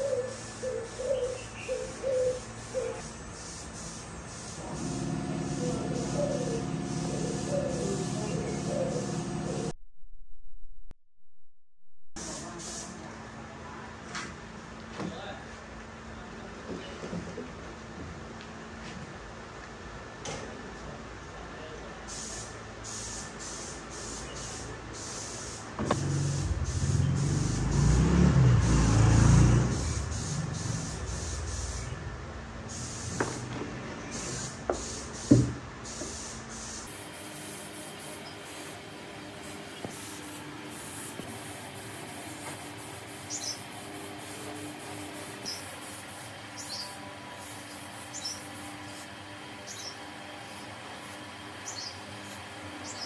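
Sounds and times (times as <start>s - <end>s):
sharp knocks on wood: 33.1s - 35.6s.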